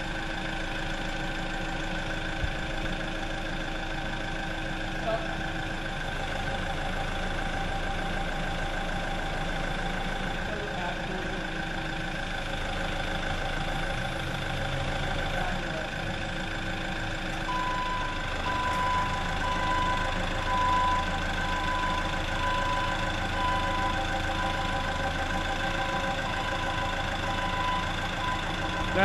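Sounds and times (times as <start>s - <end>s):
forklift engine idling: 0.0s - 29.0s
short high warning beeps: 17.5s - 24.8s.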